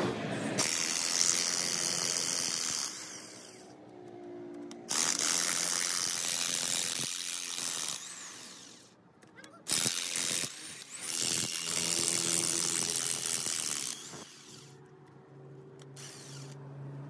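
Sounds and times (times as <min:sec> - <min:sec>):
electric impact wrench running: 0:00.6 - 0:03.8, 0:04.8 - 0:08.9, 0:09.7 - 0:14.8, 0:16.0 - 0:16.6.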